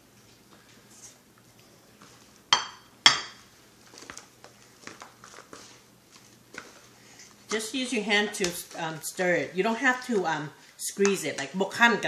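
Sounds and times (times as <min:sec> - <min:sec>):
ceramic plate clinking: 0:02.5 - 0:03.4
rice salad being mixed in bowl: 0:03.4 - 0:12.0.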